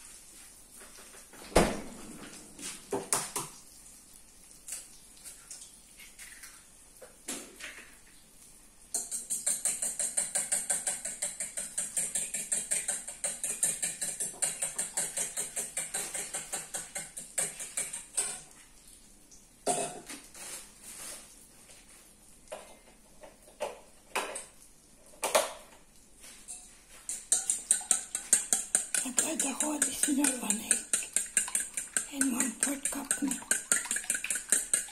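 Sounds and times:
utensil beating egg in metal bowl: 8.9s - 18.4s, 26.5s - 34.9s
taps and scrapes against bowl: 8.9s - 18.5s, 26.4s - 34.9s.

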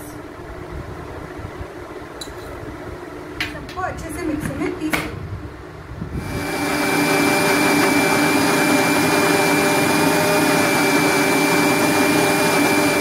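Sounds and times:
mixer grinder motor whine: 6.1s - 13.0s
food grinding in mixer: 6.2s - 13.0s.

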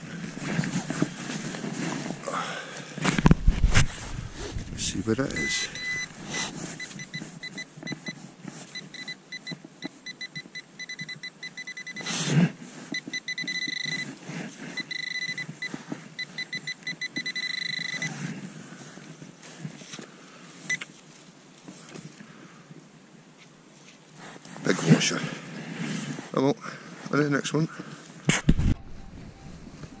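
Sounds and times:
metal detector pinpointer beeping: 5.3s - 12.1s, 12.9s - 14.1s, 14.8s - 18.1s, 28.7s - 30.0s.

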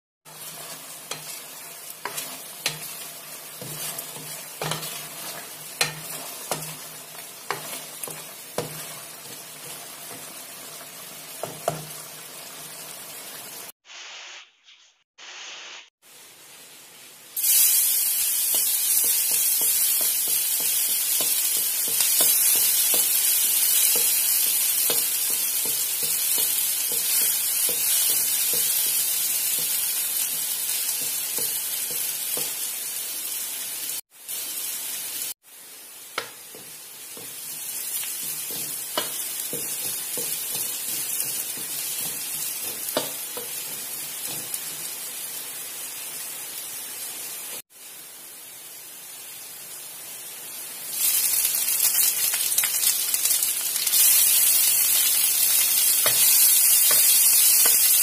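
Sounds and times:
garlic sizzling in hot oil: 0.2s - 13.8s, 15.3s - 58.0s
stir fry sizzling in a wok: 0.2s - 14.5s, 15.2s - 58.0s
spatula scraping and tapping metal: 0.3s - 1.4s, 2.0s - 10.3s, 11.4s - 11.9s, 18.5s - 23.2s, 23.8s - 29.0s, 36.2s - 44.8s, 56.0s - 57.9s.

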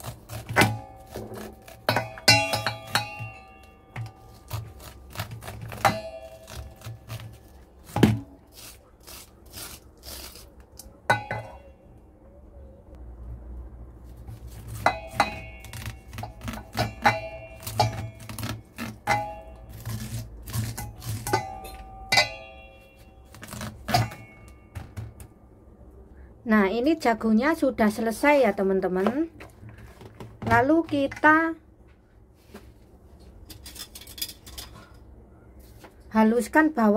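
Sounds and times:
knife scraping a steel bowl: 14.4s - 24.5s
bowl ringing: 21.4s - 23.3s.

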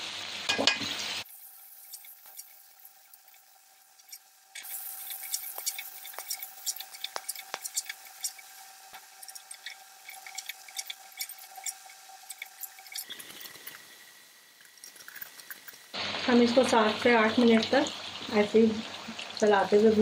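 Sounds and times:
food sizzling in oil: 0.0s - 20.0s
metal spatula scraping a pan: 1.8s - 13.8s.

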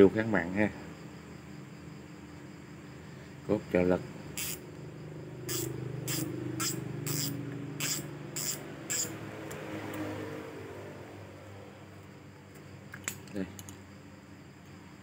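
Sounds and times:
fishing reel hissing zips: 4.4s - 4.6s, 5.4s - 9.2s.

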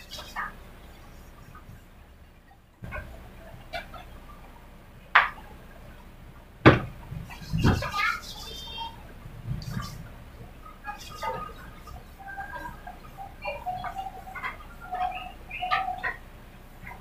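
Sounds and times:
high chirping: 0.0s - 17.0s
sharp knocks: 6.6s - 8.1s.

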